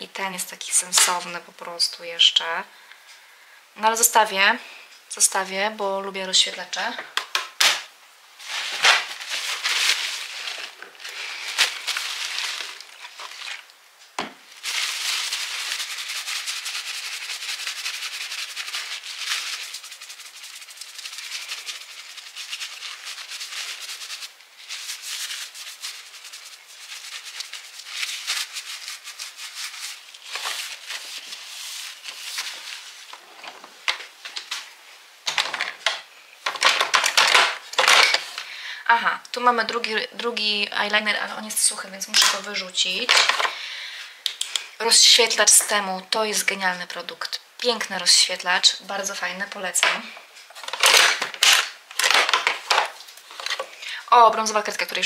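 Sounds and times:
plastic containers rattling in drawer: 35.3 - 38.4, 43.1 - 43.5, 49.8 - 53.7.

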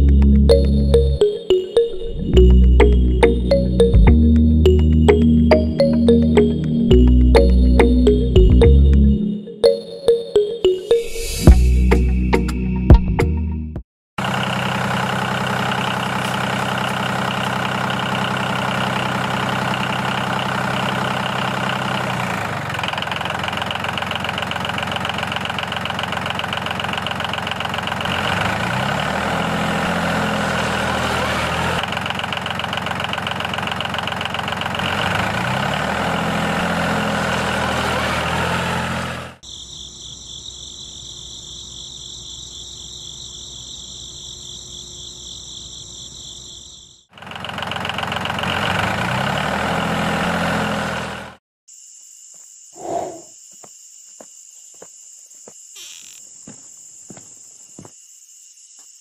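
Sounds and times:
tractor engine running: 2.3 - 9.2, 14.2 - 39.4, 47.1 - 51.4
crickets chirping: 39.4 - 47.1, 51.7 - 59.0.

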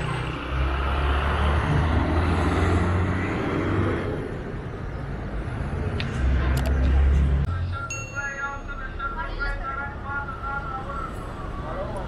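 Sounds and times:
motor vehicle passing: 0.0 - 7.5.

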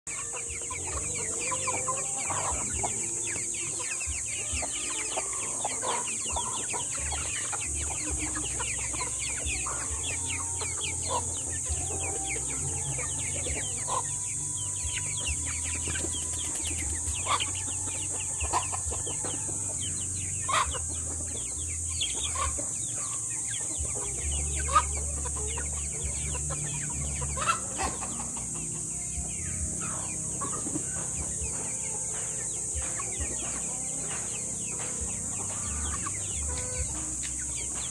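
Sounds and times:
falling chirps: 0.1 - 20.8
chickens clucking and peeping: 0.1 - 37.9
high-pitched hiss: 0.1 - 37.9.

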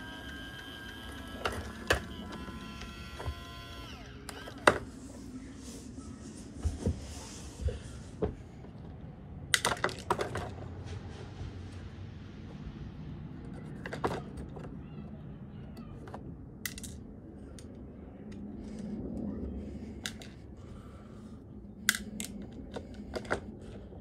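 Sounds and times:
plastic toy clicks and knocks: 9.5 - 10.5, 15.8 - 17.7, 21.9 - 23.5.

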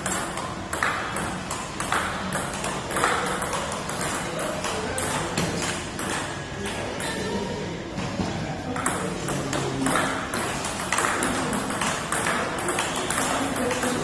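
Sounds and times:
table tennis ball clicking: 8.8 - 14.0.

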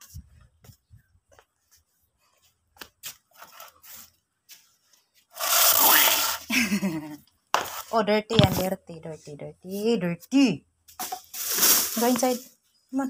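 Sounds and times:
loud rubbing scrape: 5.3 - 6.5.

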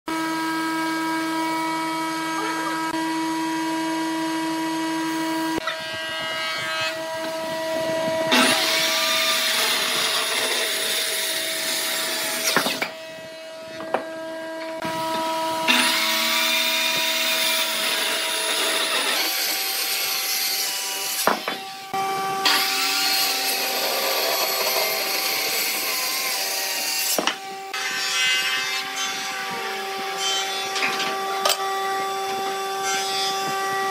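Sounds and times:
sawing or planing noise: 0.1 - 33.9
motor hum: 0.2 - 18.7.

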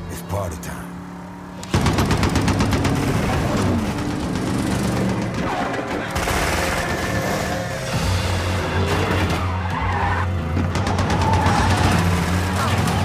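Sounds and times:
car engines running: 0.0 - 13.0
machine-gun fire: 1.7 - 7.5.

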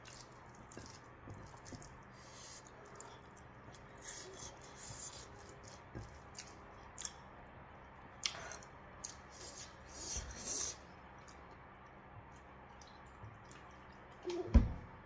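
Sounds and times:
fingers squishing food: 0.0 - 7.4.

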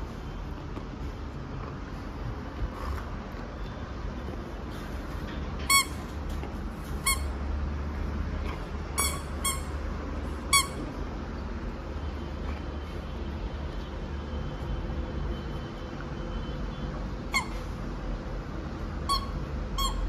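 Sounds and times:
rubber toy squeaking: 5.6 - 6.1, 7.0 - 7.3, 8.9 - 9.8, 10.5 - 10.8, 17.3 - 17.6, 19.0 - 20.0.

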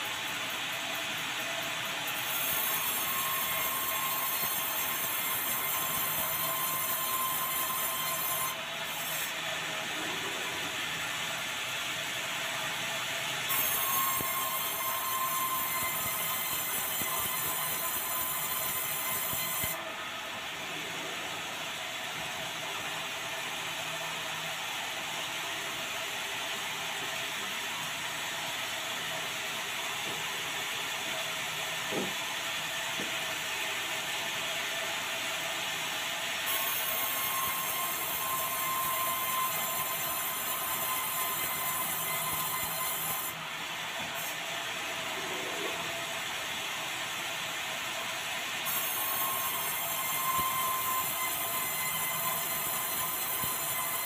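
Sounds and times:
band saw cutting timber: 1.8 - 11.0, 13.4 - 20.0, 36.4 - 43.4, 48.6 - 54.0.

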